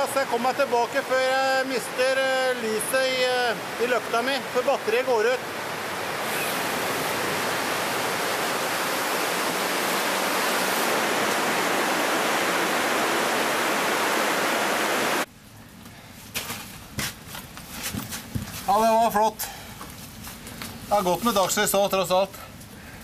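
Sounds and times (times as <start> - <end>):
water rushing: 0.0 - 15.3.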